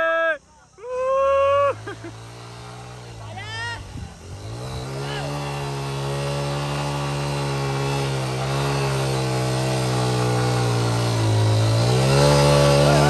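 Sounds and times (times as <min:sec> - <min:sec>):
small motorcycle engine under load: 0:00.8 - 0:13.0
wheel churning mud and water: 0:04.2 - 0:13.0.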